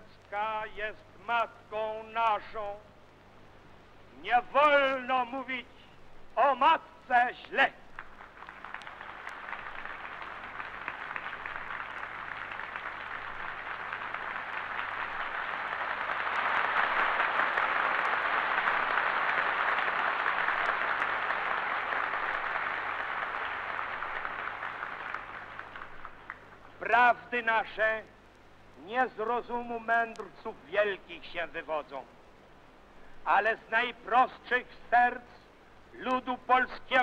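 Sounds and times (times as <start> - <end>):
faint low hum: 0.0 - 37.0
large crowd applauding: 7.9 - 26.8.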